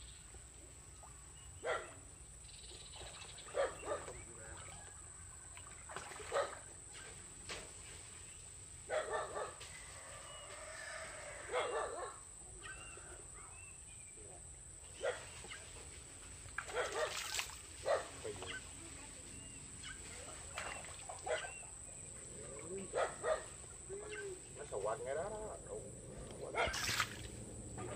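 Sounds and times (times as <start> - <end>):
dog barking: 1.6 - 2.0, 3.0 - 4.2, 6.2 - 6.6, 8.9 - 9.6, 11.5 - 13.6, 15.0 - 15.4, 16.6 - 18.6, 21.2 - 21.7, 22.8 - 23.6, 26.5 - 26.9.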